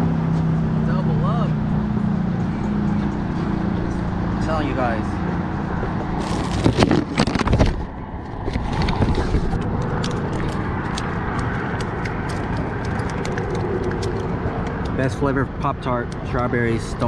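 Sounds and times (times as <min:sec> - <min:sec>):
bumps and rustles of gear in bag: 0:06.2 - 0:07.8.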